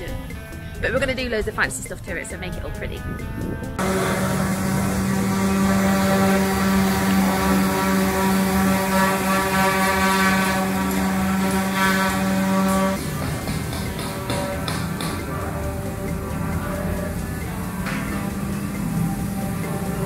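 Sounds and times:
machine humming: 3.7s - 20.0s.

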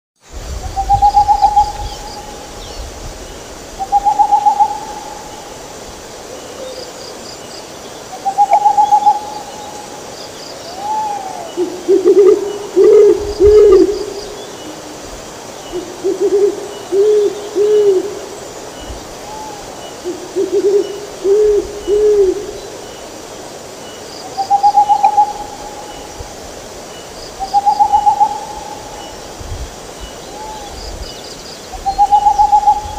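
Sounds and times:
owls hooting: 3.8s - 5.5s, 8.2s - 9.9s, 10.7s - 15.0s, 15.7s - 18.2s, 19.2s - 22.6s, 24.4s - 26.1s, 27.4s - 29.2s, 31.8s - 32.9s.

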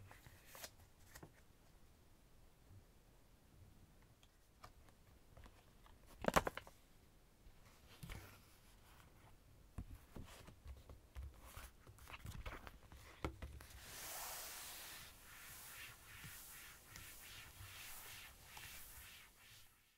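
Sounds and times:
paper rustling and rubbing: 13.6s - 19.9s.

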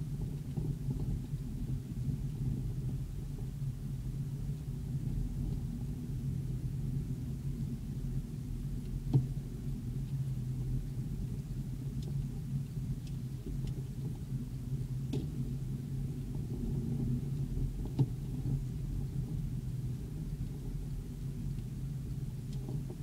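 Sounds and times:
faint ticks: 8.8s - 15.5s, 16.2s - 23.0s.

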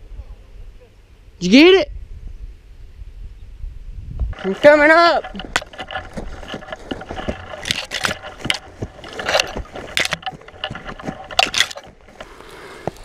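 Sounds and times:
clothing and gear rustling: 4.4s - 13.0s
footsteps crunching through dry weeds: 4.4s - 13.0s.

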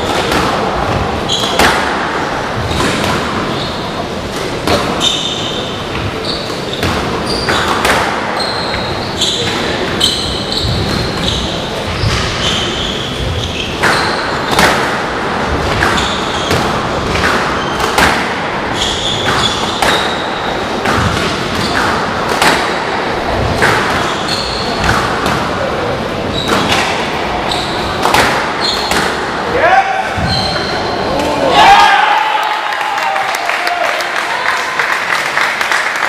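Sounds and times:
squash ball hitting rackets and walls: 0.0s - 31.4s
shoes squeaking on wooden floor: 4.9s - 14.6s, 15.7s - 16.9s, 18.7s - 21.9s, 23.7s - 25.0s, 26.2s - 29.0s, 30.2s - 31.1s.

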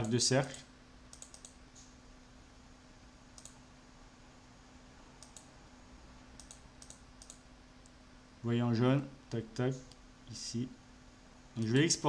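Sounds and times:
computer mouse clicks: 0.0s - 1.9s, 3.3s - 3.6s, 5.2s - 5.5s, 6.4s - 8.0s.

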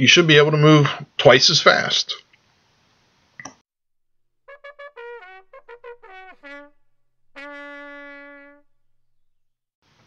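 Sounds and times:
trumpet fanfare: 4.5s - 8.7s.

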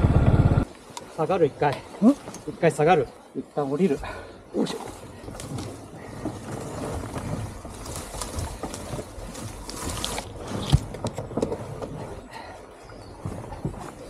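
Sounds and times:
rustling in undergrowth: 0.6s - 14.0s.

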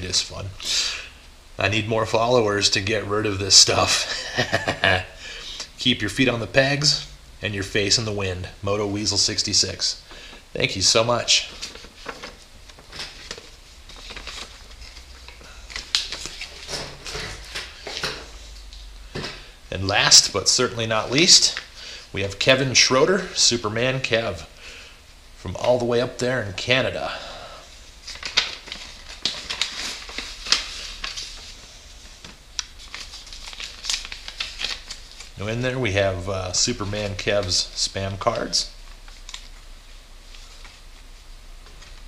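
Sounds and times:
paper rustling: 10.7s - 18.6s, 28.0s - 36.0s, 36.6s - 42.0s.

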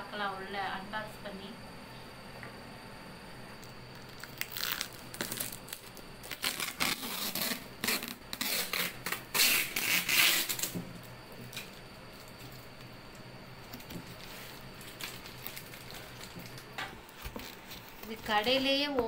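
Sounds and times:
plastic wrap and tape crinkling: 3.9s - 10.8s, 11.4s - 18.9s.

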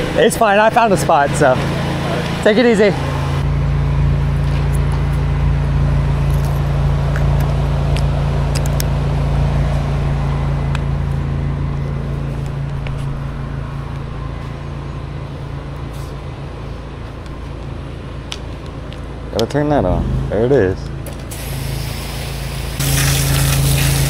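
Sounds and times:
pressure washer engine running: 0.0s - 6.9s, 21.1s - 24.0s.

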